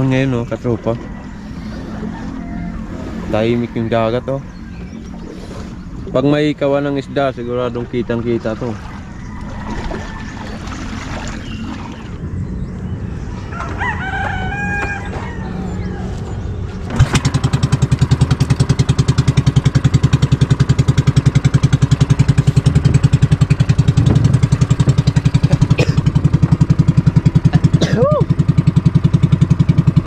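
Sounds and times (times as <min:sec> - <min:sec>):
small boat engine thumping: 0:00.0 - 0:30.0
rooster crowing: 0:00.9 - 0:03.0, 0:13.4 - 0:16.3.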